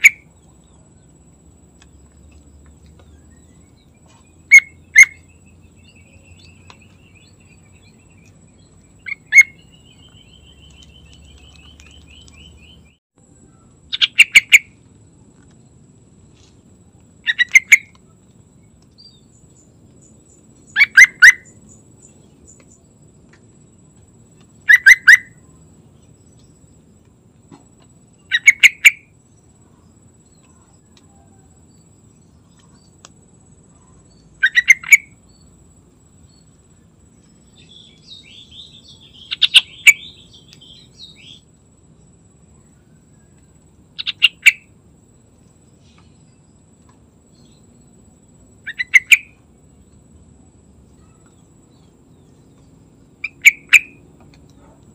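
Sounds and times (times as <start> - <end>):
bird chattering: 0.0 - 0.3, 4.1 - 8.4, 9.0 - 12.9, 13.8 - 14.8, 17.2 - 18.0, 20.7 - 21.6, 24.6 - 25.4, 28.2 - 29.1, 34.4 - 35.2, 37.6 - 41.4, 44.0 - 44.7, 48.6 - 49.4, 53.2 - 54.0
bird chirping song: 0.0 - 15.8, 16.4 - 54.9.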